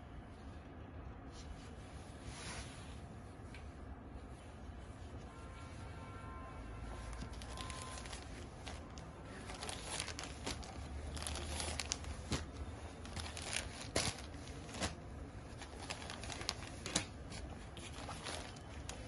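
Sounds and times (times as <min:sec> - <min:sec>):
fabric rustling and crinkling: 0:01.3 - 0:03.3, 0:06.8 - 0:19.0.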